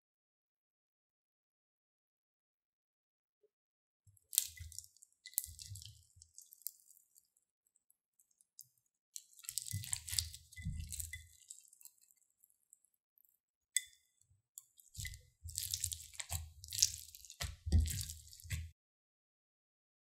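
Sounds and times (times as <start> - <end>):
slime crackling and squishing: 4.2 - 7.3, 9.2 - 12.8, 14.6 - 18.7.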